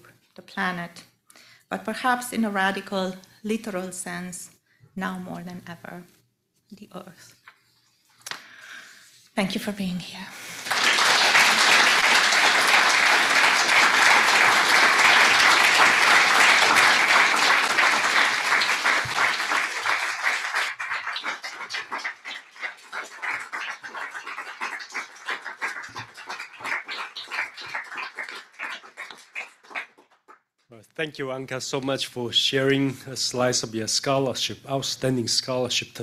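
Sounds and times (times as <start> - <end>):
audience applauding: 10.5 - 30.3.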